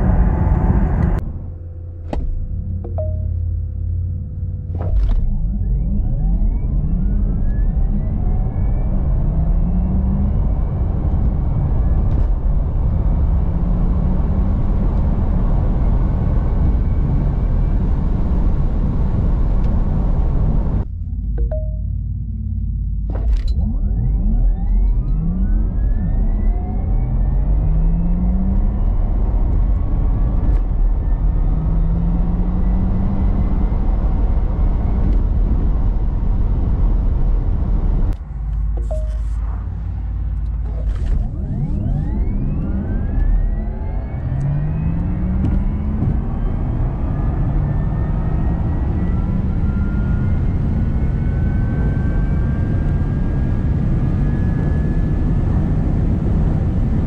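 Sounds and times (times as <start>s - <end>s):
tyre and road noise rumble: 22.0s - 57.0s
electric car drivetrain whine: 40.2s - 57.0s.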